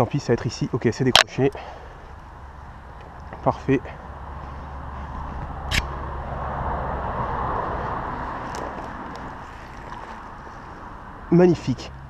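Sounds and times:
stream water running: 8.5s - 11.2s.

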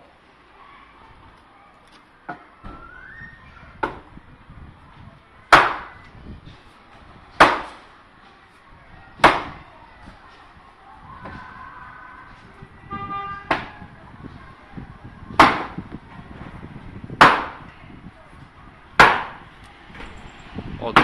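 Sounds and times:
axe splitting wood: 5.5s - 5.9s, 7.4s - 7.8s, 9.2s - 9.6s, 15.4s - 15.8s, 17.2s - 17.6s, 19.0s - 19.4s.

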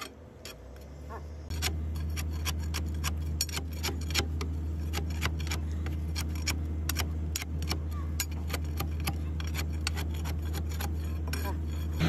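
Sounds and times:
low machine hum: 0.0s - 12.0s.

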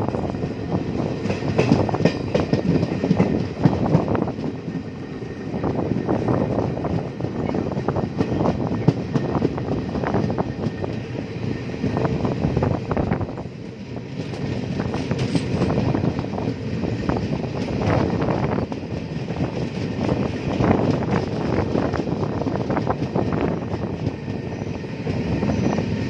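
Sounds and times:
train clicks and rattles: 0.0s - 26.0s
train wheels rumbling on rails: 0.0s - 26.0s.

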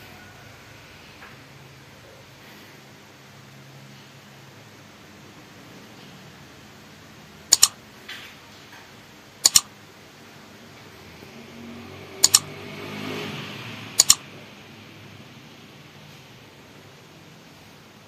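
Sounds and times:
mouse double clicks: 7.5s - 7.8s, 9.4s - 9.7s, 12.2s - 12.5s, 14.0s - 14.2s.

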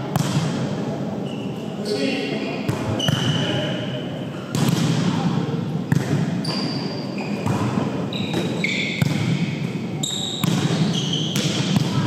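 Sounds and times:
shoes squeaking on court floor: 1.2s - 4.0s, 6.4s - 12.0s
volleyball being hit: 4.5s - 6.4s, 7.4s - 9.7s, 10.4s - 12.0s.

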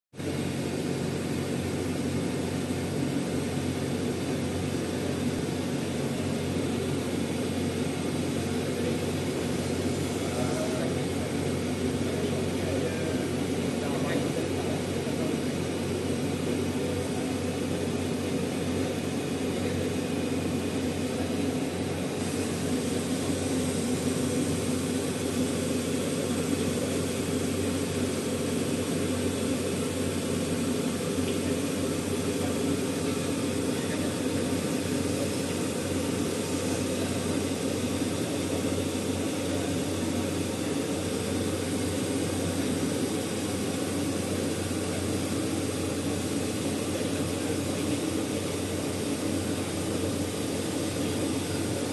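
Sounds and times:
rushing air from fans: 0.2s - 51.9s.

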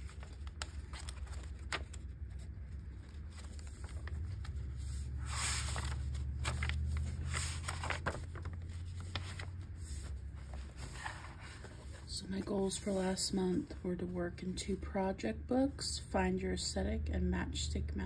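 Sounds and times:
notebook pages turning: 0.0s - 13.2s
low steady rumble: 0.0s - 18.0s.

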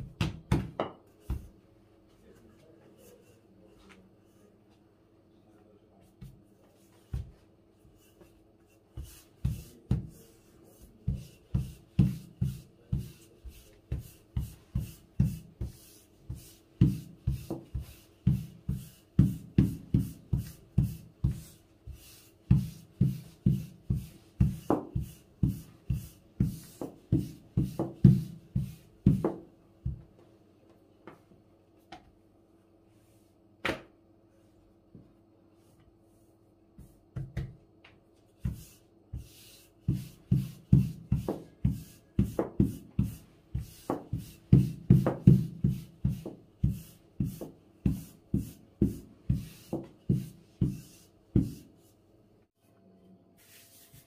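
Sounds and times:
rolling pin knocking on dough: 0.0s - 1.6s, 9.0s - 10.2s, 11.0s - 21.6s, 22.5s - 30.1s, 38.4s - 51.7s.

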